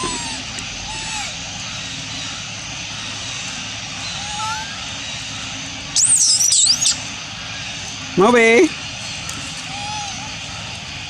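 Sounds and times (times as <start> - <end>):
monkey high-pitched scream: 0.0 - 2.0, 4.0 - 4.9, 6.0 - 7.0, 9.6 - 10.5.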